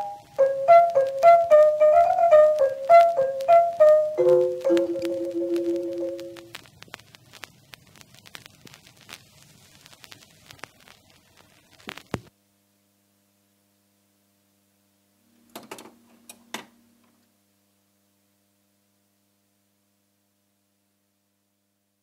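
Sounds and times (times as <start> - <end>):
vinyl crackle and clicks: 0.0 - 12.3
mains hum: 0.0 - 22.0
clicks and knocks: 15.5 - 16.7.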